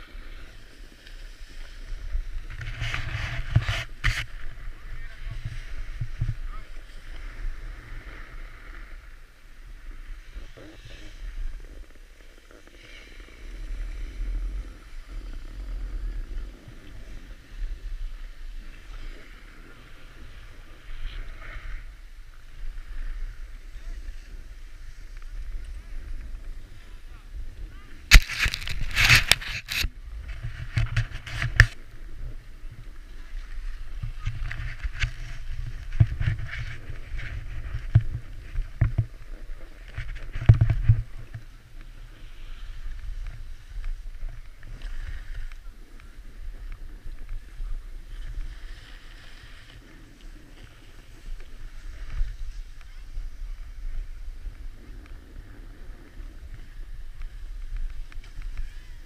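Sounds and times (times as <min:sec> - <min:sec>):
ski edges scraping packed snow: 0:00.0 - 0:59.0
wind rumbling on microphone: 0:00.0 - 0:59.0.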